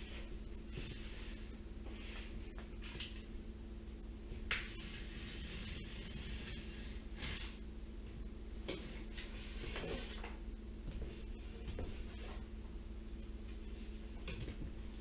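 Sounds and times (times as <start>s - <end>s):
steady low hum: 0.0s - 15.0s
drywall scraping and rustling: 4.6s - 7.6s, 8.7s - 10.4s.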